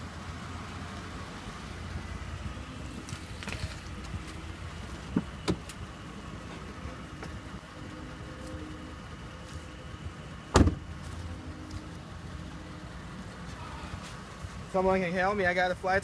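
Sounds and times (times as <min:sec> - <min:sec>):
steady low hum: 0:00.0 - 0:15.5
car door unlatching and opening: 0:05.0 - 0:05.8, 0:10.5 - 0:10.9.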